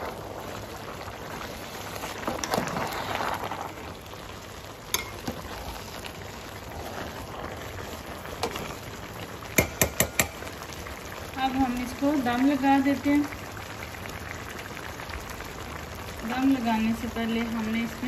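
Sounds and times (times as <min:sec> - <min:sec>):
rice simmering with bubbling hiss: 0:00.0 - 0:18.0
metal spoon knocking on pot: 0:09.6 - 0:10.4.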